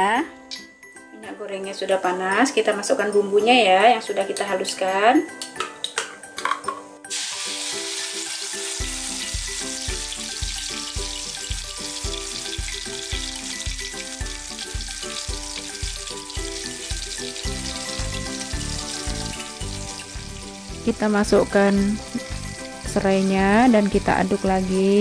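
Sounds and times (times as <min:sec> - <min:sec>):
spice paste sizzling in oil: 0:07.1 - 0:25.0
background music with beat: 0:08.4 - 0:25.0.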